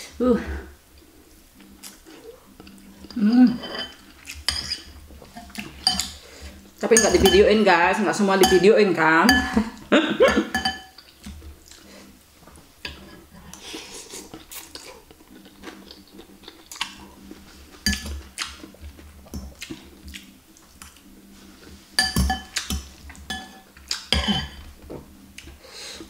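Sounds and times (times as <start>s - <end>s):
chewing: 0.9s - 6.6s, 10.9s - 12.2s, 12.9s - 21.8s, 22.5s - 24.1s
cutlery clinking on glass bowl: 3.5s - 6.2s, 6.9s - 7.5s, 8.4s - 8.7s, 10.3s - 11.0s, 17.8s - 18.2s, 22.0s - 24.6s.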